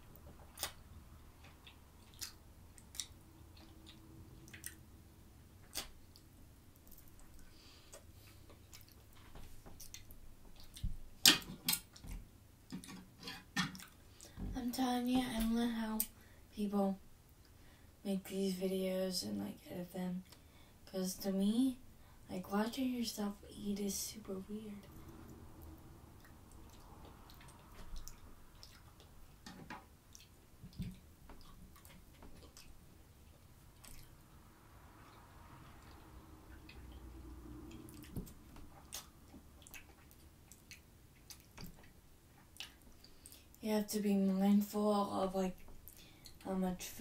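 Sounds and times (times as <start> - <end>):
wet squishy food sounds: 0.1 - 4.9, 5.5 - 14.4, 24.9 - 43.6
chewing and mouth clicks: 0.4 - 0.8, 1.4 - 4.8, 5.6 - 10.9, 13.7 - 14.4, 24.9 - 29.4, 30.0 - 34.2, 35.1 - 43.6.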